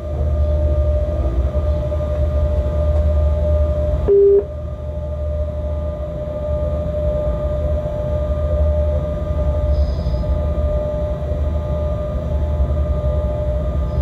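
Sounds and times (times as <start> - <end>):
locomotive rumble and whine: 0.0 - 14.0
short loud beep: 4.1 - 4.5.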